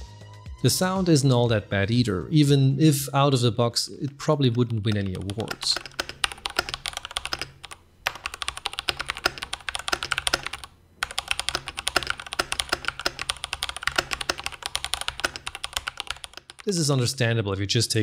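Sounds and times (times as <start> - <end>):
mechanical keyboard typing: 4.0 - 16.8.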